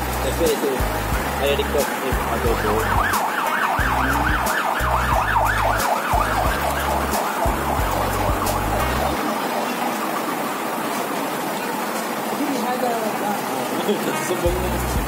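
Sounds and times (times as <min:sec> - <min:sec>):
deep bass notes: 0:00.0 - 0:03.2, 0:03.8 - 0:09.2, 0:14.5 - 0:15.0
siren yelping: 0:02.4 - 0:12.0.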